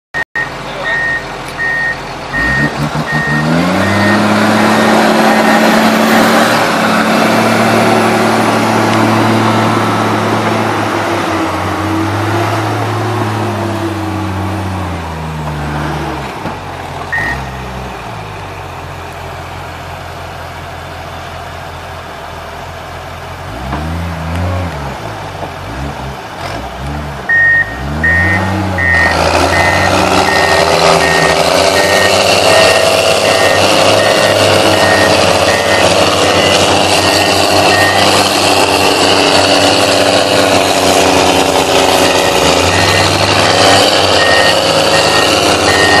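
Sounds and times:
reversing beep: 0.2 - 6.6, 17.1 - 17.8, 27.3 - 38.7, 41.8 - 46.0
heavy diesel engines revving: 0.2 - 46.0.

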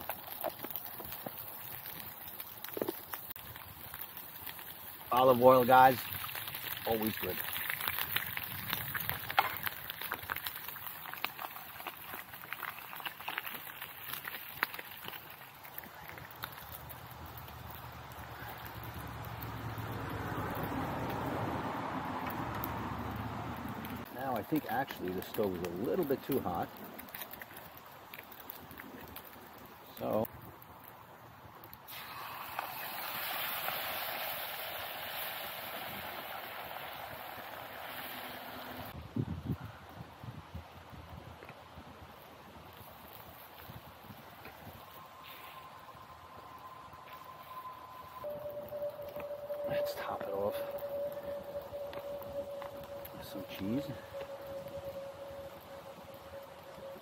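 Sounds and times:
meat sizzling in frying pan: 0.0 - 15.8, 31.9 - 38.9.

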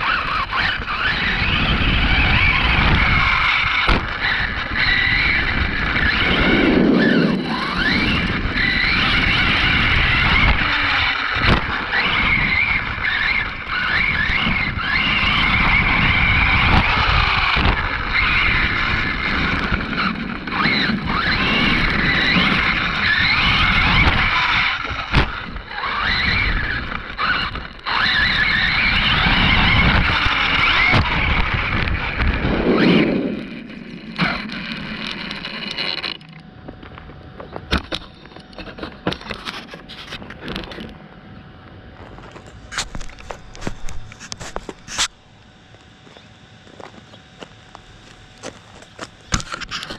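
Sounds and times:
electric motor whine: 0.0 - 49.9
tyre noise on pavement: 41.9 - 49.9.

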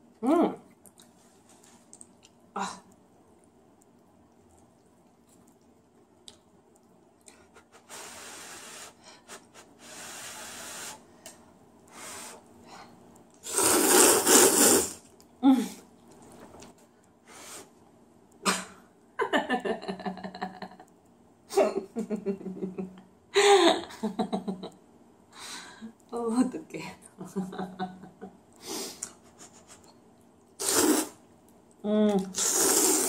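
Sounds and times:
person slurping noodles: 13.4 - 15.0, 30.6 - 31.2, 32.3 - 33.0
woman laughing: 18.5 - 20.9, 21.5 - 24.8, 27.2 - 28.3.

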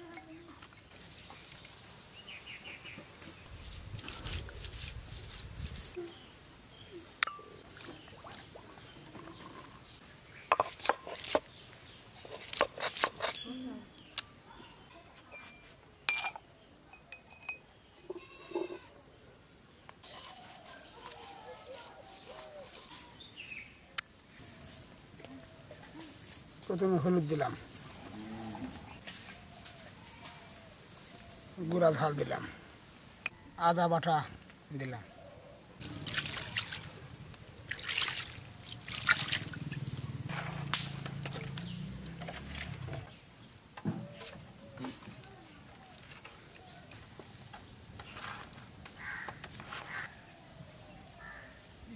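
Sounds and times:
animal bleating: 18.1 - 18.9.

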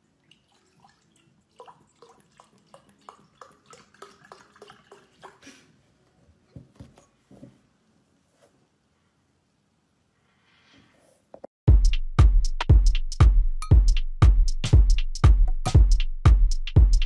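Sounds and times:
milk glugging into a glass: 0.0 - 5.6.

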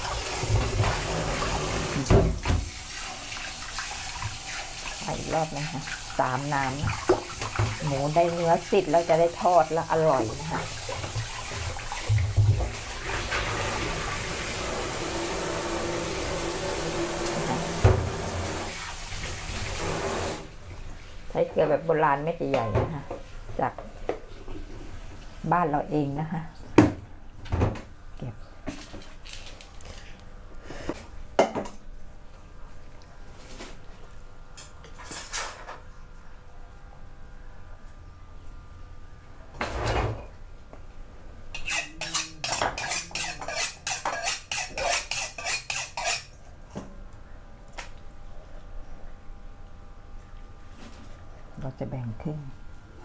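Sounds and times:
faucet water running: 0.0 - 21.0, 41.6 - 46.4.

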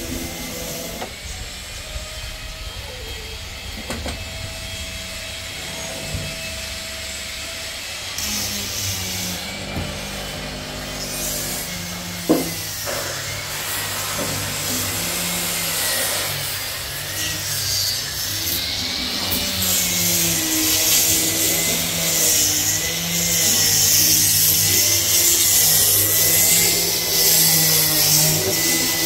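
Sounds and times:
power tool whining on wood: 0.0 - 29.0.

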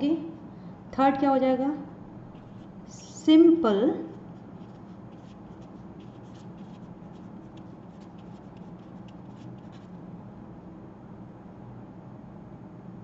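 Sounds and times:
marker writing on paper: 2.4 - 2.9, 4.1 - 10.0.

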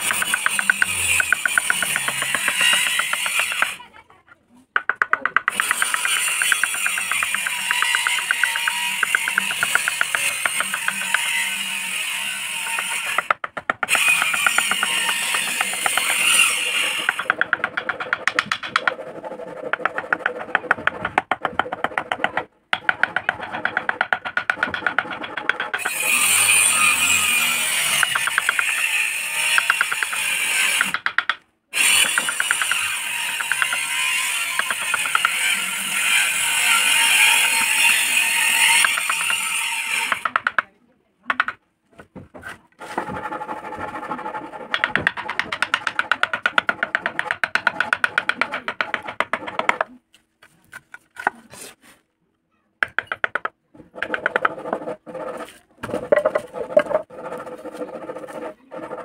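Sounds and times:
chisel clicking and tapping on wood: 0.0 - 3.8, 4.7 - 11.4, 12.6 - 19.0, 19.6 - 26.4, 27.8 - 35.6, 38.6 - 39.5, 40.1 - 40.7, 41.3 - 41.6, 44.7 - 49.9, 52.8 - 54.8.

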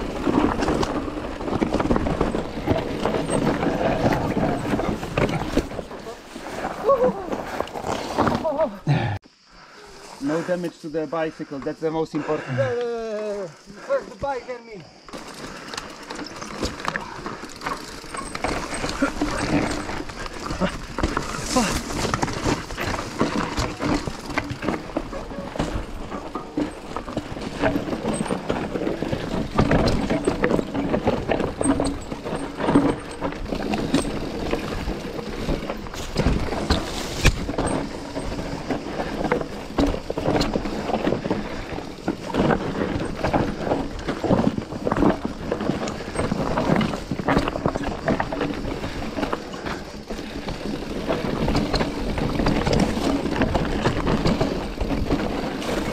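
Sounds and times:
bike knocking and rattling: 0.0 - 8.9, 15.0 - 55.9
tyres on loose rock: 15.0 - 55.9.

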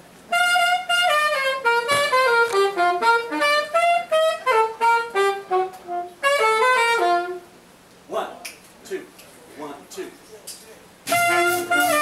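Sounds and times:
woodwind solo melody: 0.3 - 7.5, 11.1 - 12.0.

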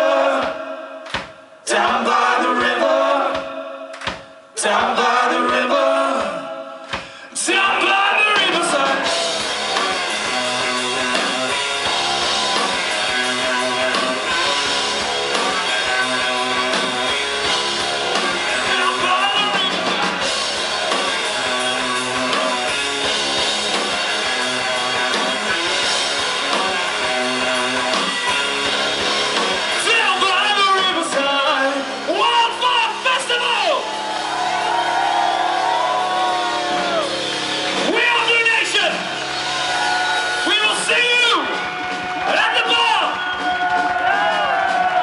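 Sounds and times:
people singing: 0.0 - 0.8, 1.6 - 9.2
rock band playing: 7.0 - 45.0.

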